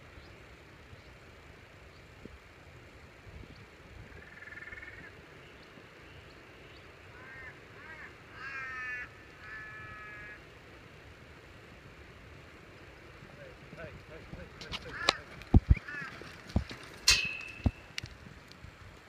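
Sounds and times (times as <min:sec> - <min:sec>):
crow cawing: 0:04.2 - 0:05.1, 0:07.1 - 0:10.4, 0:14.8 - 0:16.2.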